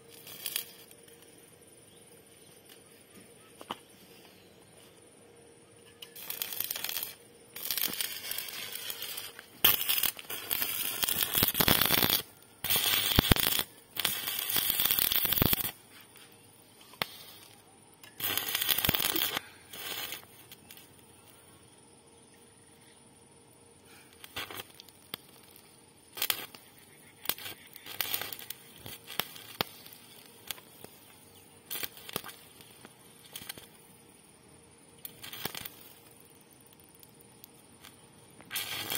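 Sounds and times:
welding arc crackling: 0.0s - 1.4s, 5.9s - 21.0s, 24.1s - 34.0s, 35.0s - 38.9s.

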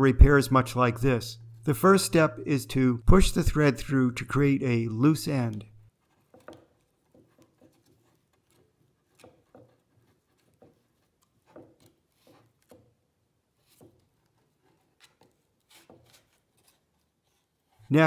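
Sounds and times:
knife awl scraping cardboard: 5.9s - 17.9s.

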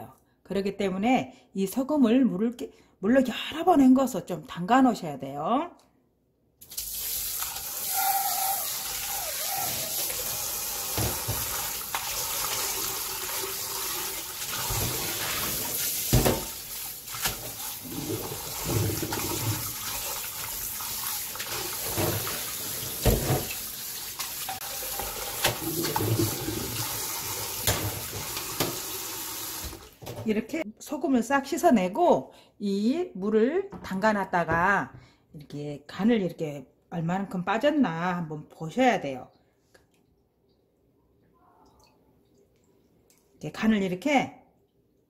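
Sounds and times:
tap running into a bowl: 10.9s - 12.1s, 27.6s - 28.9s.

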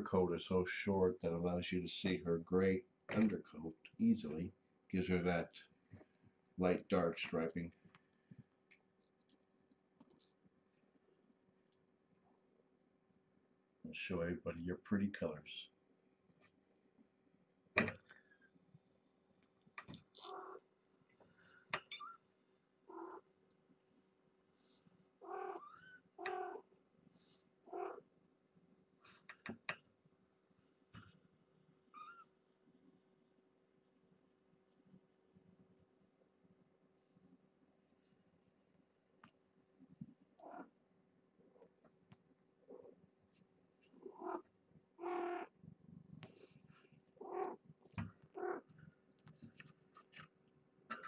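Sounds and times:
cat meowing: 22.9s - 23.2s, 25.2s - 26.6s, 27.7s - 28.0s, 44.0s - 44.4s, 45.0s - 45.5s, 47.2s - 47.6s, 48.4s - 48.6s
cat purring: 22.9s - 23.2s, 25.2s - 26.7s, 27.6s - 28.0s, 43.9s - 48.8s.

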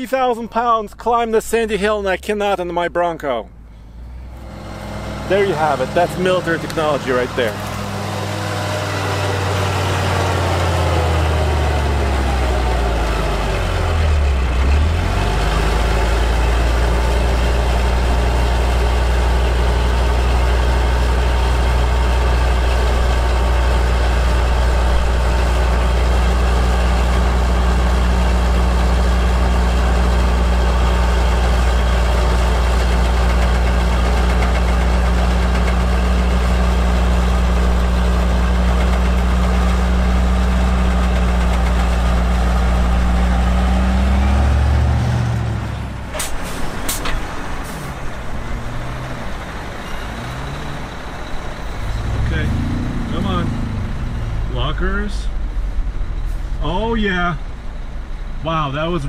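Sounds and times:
truck diesel engine droning: 0.0s - 59.0s.

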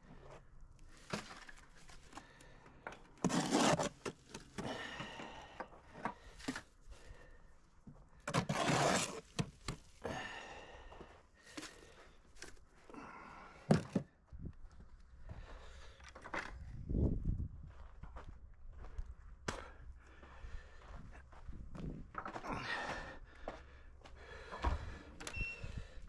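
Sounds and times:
hoe scraping wet mortar: 3.2s - 4.7s, 8.3s - 9.6s.

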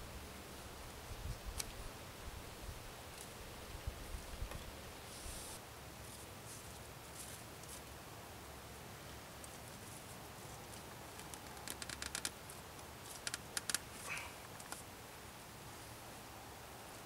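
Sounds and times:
cord creaking with sharp clicks: 11.2s - 12.4s, 13.1s - 14.8s.

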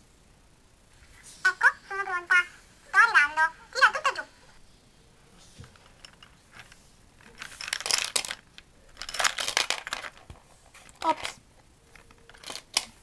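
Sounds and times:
plastic toy pieces rattling: 5.8s - 11.4s, 12.0s - 13.0s.

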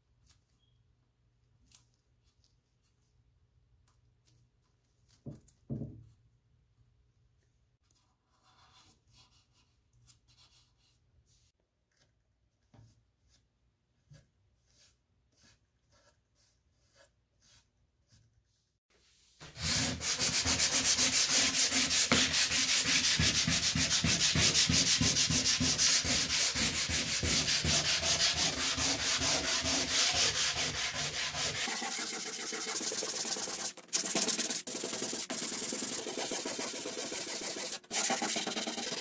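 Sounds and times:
hand sanding wood: 19.4s - 39.0s.

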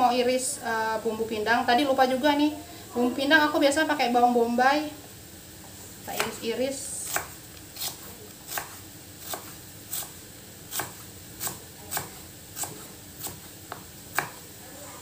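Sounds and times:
knife hitting cutting board: 10.7s - 14.4s.

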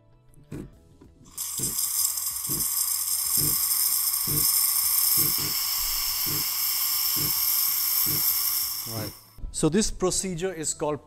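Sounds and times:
espresso machine steam hissing: 1.3s - 9.4s.

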